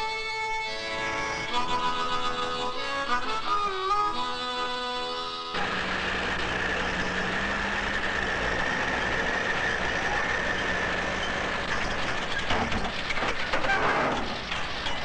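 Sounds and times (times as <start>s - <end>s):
truck engine running: 0.0s - 15.0s
sharp metallic knocks: 6.4s - 15.0s.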